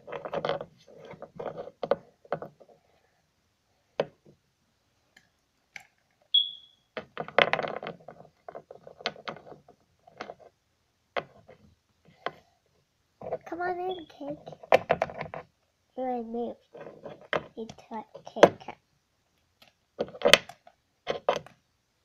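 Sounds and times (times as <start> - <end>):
plastic toys clicking and scraping: 0.0 - 2.8, 7.0 - 10.5, 16.7 - 18.8, 19.6 - 21.6
high chirp: 6.3 - 6.8.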